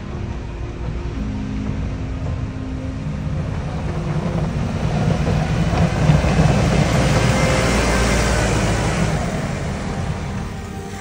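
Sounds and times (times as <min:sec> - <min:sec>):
truck engine running: 0:00.0 - 0:11.0
plough blade pushing snow: 0:03.2 - 0:11.0.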